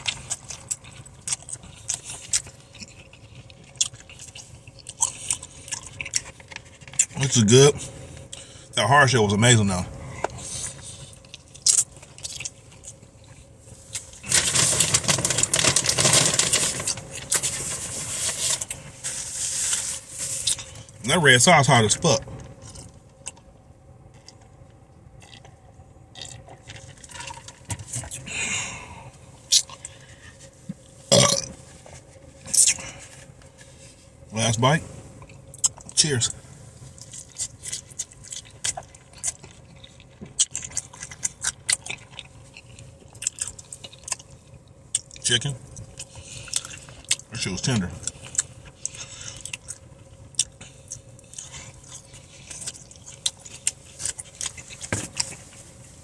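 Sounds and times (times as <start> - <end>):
person chewing food: 0.0 - 8.7, 10.0 - 21.0, 22.4 - 34.2, 35.2 - 36.0, 36.8 - 47.3, 48.0 - 56.0
crackly handling noise: 13.8 - 21.0.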